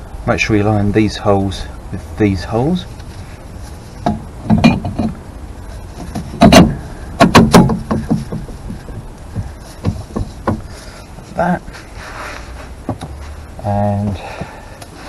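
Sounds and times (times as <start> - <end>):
metallic knocks and clunks: 4.0 - 5.3, 6.0 - 10.8.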